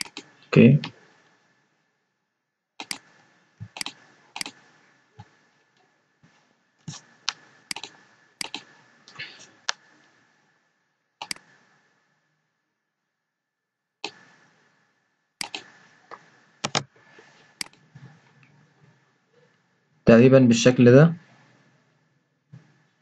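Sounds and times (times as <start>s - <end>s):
computer mouse clicks: 0.0s - 1.0s, 2.8s - 4.6s, 6.9s - 9.8s, 11.2s - 11.6s, 14.0s - 14.2s, 15.4s - 16.9s, 17.6s - 17.8s
keyboard keystrokes: 2.8s - 4.6s, 6.9s - 8.7s, 11.2s - 11.5s, 15.4s - 15.7s, 16.6s - 16.9s.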